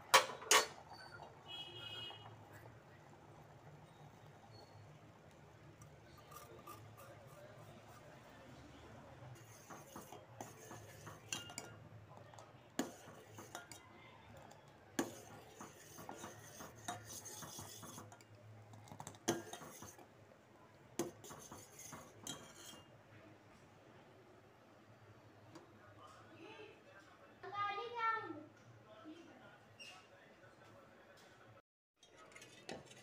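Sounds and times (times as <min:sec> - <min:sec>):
ladle clinking against pot: 0:00.0 - 0:01.4, 0:09.4 - 0:13.8, 0:14.4 - 0:20.0, 0:21.0 - 0:22.9
ladle scraping saucepan: 0:00.0 - 0:13.8, 0:14.4 - 0:20.1, 0:21.0 - 0:22.9, 0:32.0 - 0:33.0.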